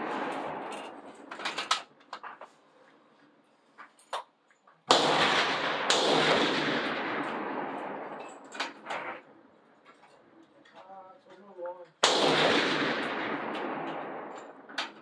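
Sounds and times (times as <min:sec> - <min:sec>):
rifle shots: 0:00.0 - 0:01.9, 0:04.9 - 0:09.4, 0:12.0 - 0:15.0.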